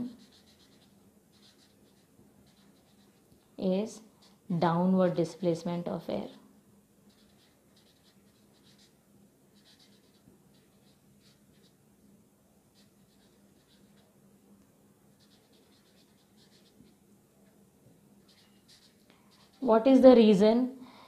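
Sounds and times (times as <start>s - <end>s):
marker pen squeaking on paper: 0.0s - 3.2s, 7.1s - 11.8s, 12.7s - 14.2s, 15.1s - 17.0s, 18.2s - 19.9s.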